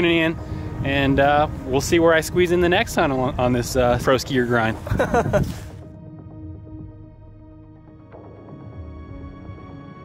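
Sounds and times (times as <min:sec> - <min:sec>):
music with held notes: 0:05.0 - 0:10.0.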